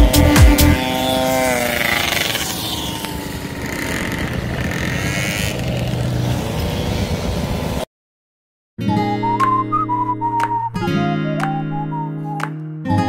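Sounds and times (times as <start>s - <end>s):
mopeds passing by: 0.0s - 7.9s.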